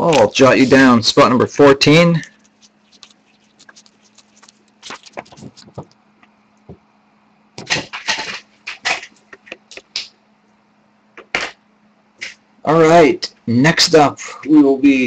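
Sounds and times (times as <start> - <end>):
faint steady hum: 0.0 - 15.0
paper rustling: 2.2 - 6.0, 7.6 - 9.9
marker scratching on paper: 2.4 - 5.9.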